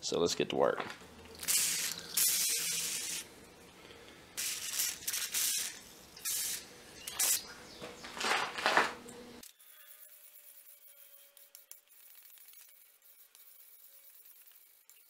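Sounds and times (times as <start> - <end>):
water spraying: 1.3 - 3.3, 4.4 - 7.5
sandpaper strokes on blade: 9.6 - 15.0.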